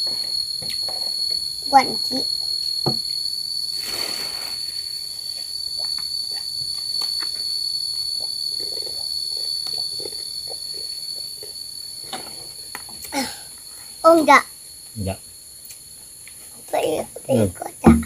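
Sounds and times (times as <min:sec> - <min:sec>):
insects singing: 0:00.0 - 0:18.0
brief rush of noise: 0:03.8 - 0:04.8.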